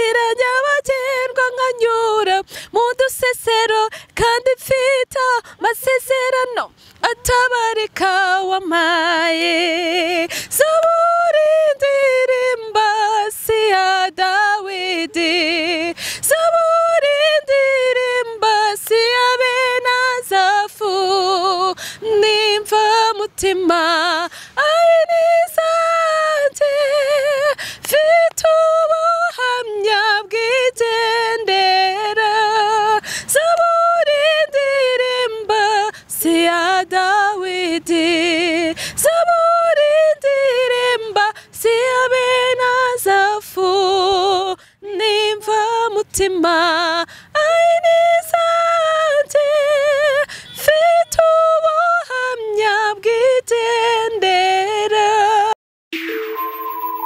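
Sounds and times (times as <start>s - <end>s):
women singing a cappella: 0.0s - 55.6s
short breaths: 2.4s - 2.8s, 3.9s - 4.2s, 5.4s - 5.6s, 6.7s - 7.0s, 10.3s - 10.6s, 15.9s - 16.3s, 21.8s - 22.0s, 24.3s - 24.6s, 27.6s - 27.9s, 33.0s - 33.3s, 35.9s - 36.1s, 38.7s - 39.0s, 41.4s - 41.6s, 44.6s - 44.8s, 47.1s - 47.4s, 50.2s - 50.6s.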